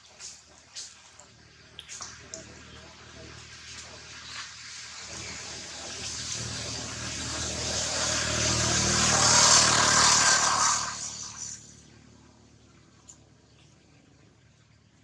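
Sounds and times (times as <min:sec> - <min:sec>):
motor vehicle passing by: 0:02.1 - 0:13.1.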